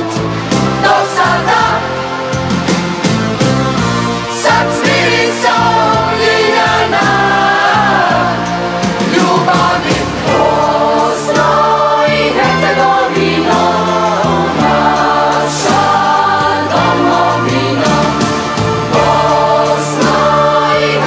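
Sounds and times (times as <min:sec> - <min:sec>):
choir singing with accompaniment: 0:00.0 - 0:21.0.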